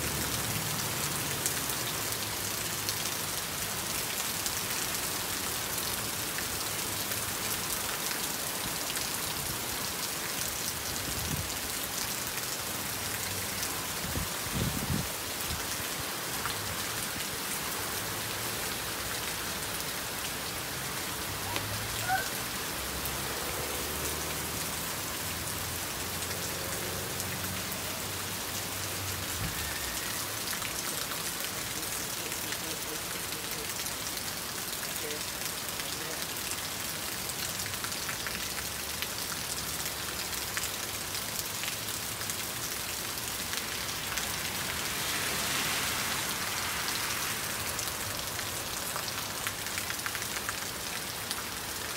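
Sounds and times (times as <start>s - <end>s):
heavy rain on asphalt: 0.0s - 51.9s.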